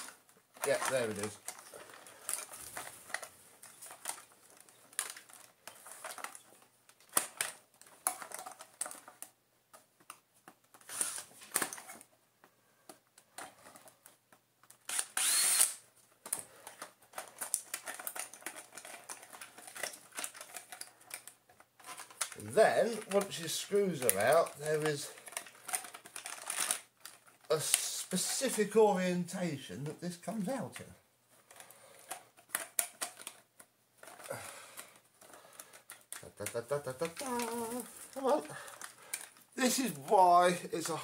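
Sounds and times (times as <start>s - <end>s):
screwdriver clicks and scrapes: 14.7s - 16.4s.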